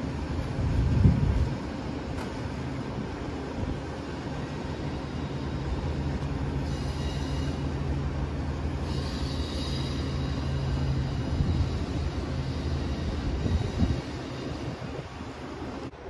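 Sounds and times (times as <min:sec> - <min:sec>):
train rumbling slowly: 0:00.0 - 0:16.0
wheel squeal: 0:06.6 - 0:07.8.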